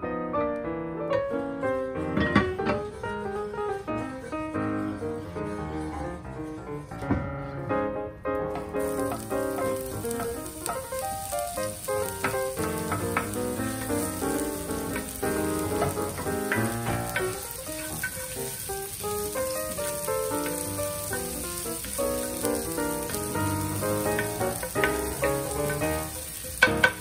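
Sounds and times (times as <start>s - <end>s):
background music melody: 0.0s - 27.0s
onions sizzling in oil: 8.5s - 27.0s.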